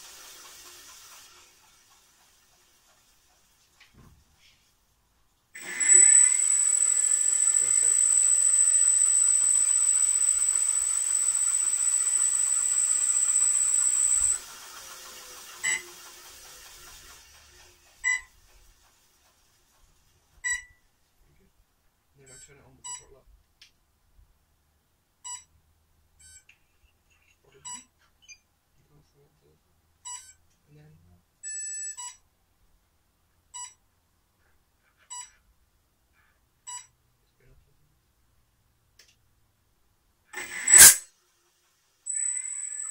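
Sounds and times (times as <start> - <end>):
short electronic beeps: 5.6 - 14.4, 20.5 - 20.8, 30.1 - 30.4, 40.4 - 41.0, 42.1 - 42.9
spinning weapon whirring and whistling: 5.6 - 18.3, 40.4 - 41.0, 42.1 - 42.9.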